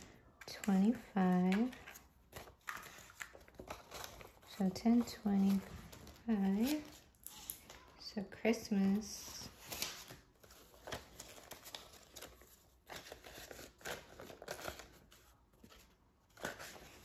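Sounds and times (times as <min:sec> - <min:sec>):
paper banknotes rustling: 0:00.6 - 0:07.9, 0:08.5 - 0:17.0.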